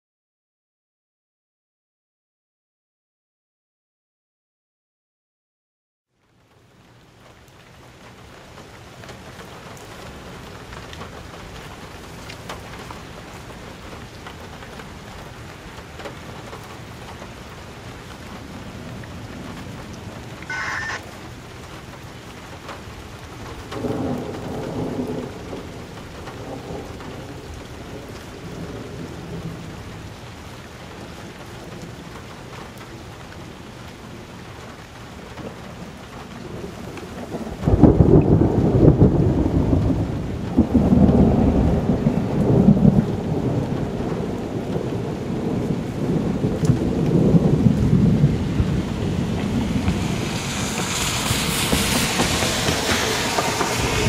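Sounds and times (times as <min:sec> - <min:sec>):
steady rain: 0:06.1 - 0:54.0
thunder rumbling: 0:18.3 - 0:21.6, 0:23.0 - 0:30.3, 0:35.4 - 0:54.0
brief pitched tones: 0:20.4 - 0:21.0.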